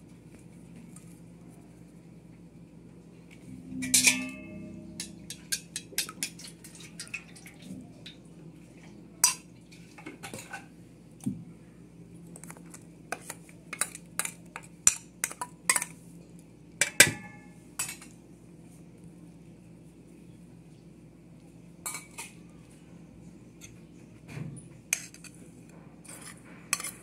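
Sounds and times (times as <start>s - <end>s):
spoon clinking on metal bowl: 3.8s - 6.5s.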